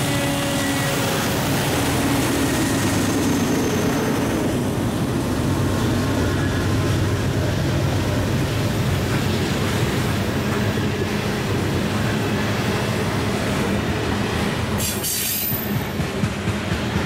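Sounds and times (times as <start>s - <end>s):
locomotive engines droning: 0.0s - 17.0s
train cars rolling on rails: 0.0s - 17.0s.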